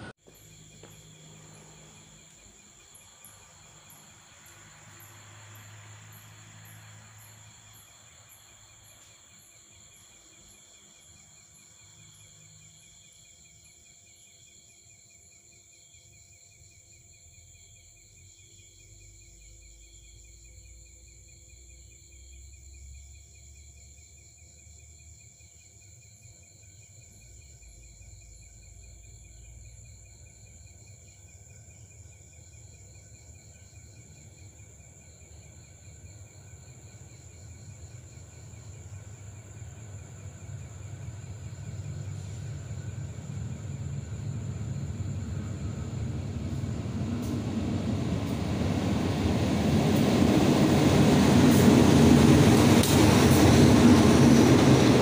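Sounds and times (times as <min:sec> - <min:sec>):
crickets trilling: 0:00.0 - 0:55.0
low rumble: 0:38.2 - 0:55.0.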